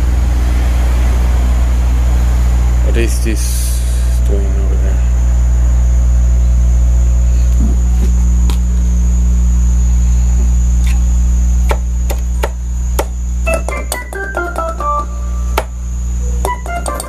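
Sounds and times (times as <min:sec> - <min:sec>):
amplifier mains hum: 0:00.0 - 0:17.0
organ notes descending run: 0:13.4 - 0:17.0.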